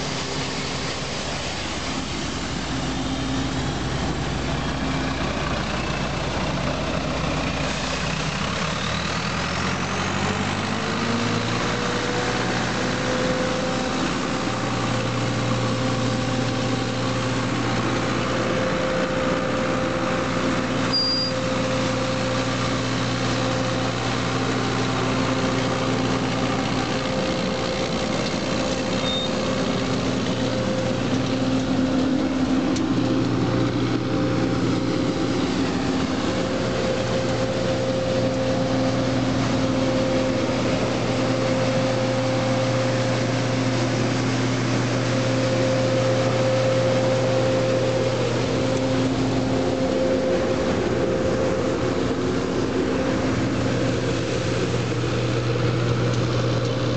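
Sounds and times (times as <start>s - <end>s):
air and brushing noise: 0.0s - 6.5s
street sweeper engine and blower hum: 0.0s - 56.9s.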